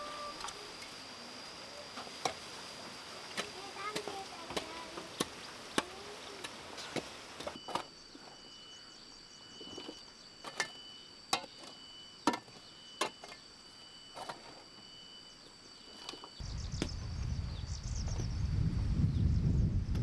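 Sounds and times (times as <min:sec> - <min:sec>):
shrill insect calls: 0:00.0 - 0:20.0
low rumbling noise: 0:16.4 - 0:20.0.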